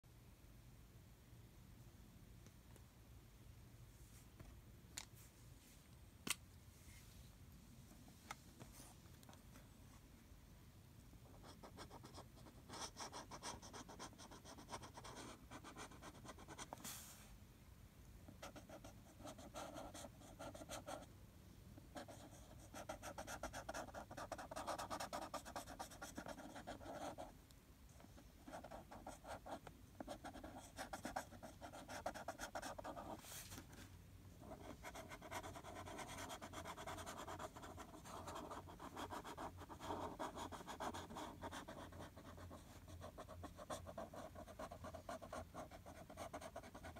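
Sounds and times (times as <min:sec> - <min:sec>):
marker scribbling on paper: 0:22.0 - 0:27.3, 0:28.4 - 0:33.2, 0:34.4 - 0:46.9.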